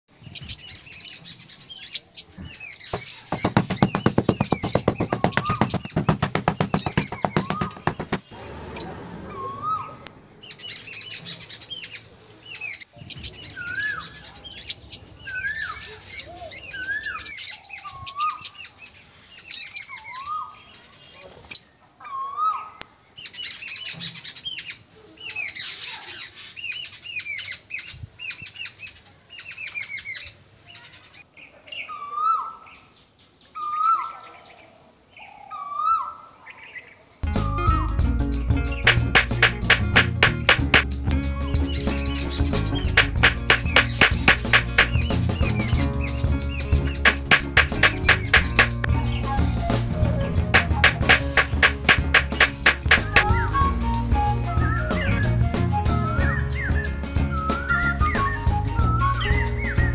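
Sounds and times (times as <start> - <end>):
birds chirping and singing: 0.1 - 59.9
loud fast rattling buzz: 42.8 - 45.3
bird whistle call: 46.6 - 59.9.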